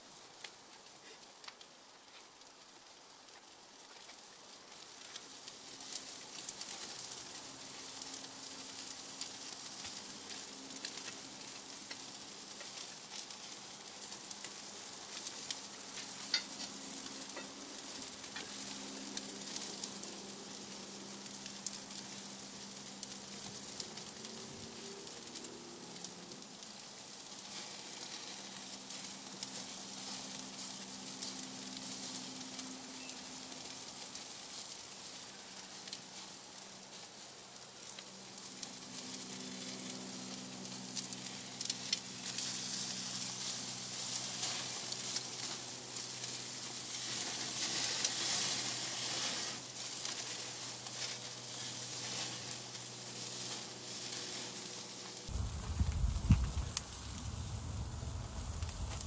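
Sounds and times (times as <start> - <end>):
crackles and pops: 0.2 - 59.0
steak sizzling on a grill: 4.9 - 32.2, 39.9 - 59.0.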